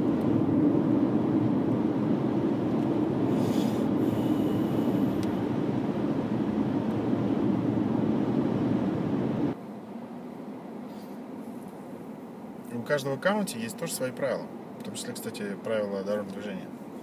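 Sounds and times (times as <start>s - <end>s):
car road and engine noise: 0.0s - 17.0s
brief high hiss: 3.3s - 5.3s.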